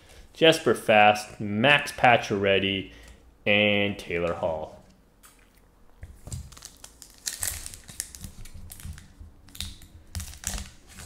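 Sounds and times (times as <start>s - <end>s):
foil wrapper tearing and crinkling: 6.2s - 11.0s.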